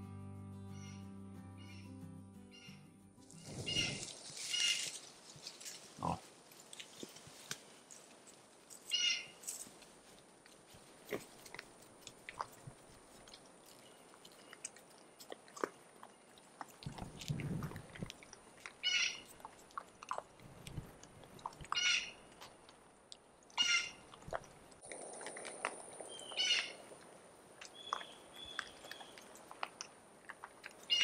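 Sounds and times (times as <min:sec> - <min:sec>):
hogs crunching and chewing feed: 0:03.5 - 0:31.0
hog grunting: 0:06.0 - 0:06.3.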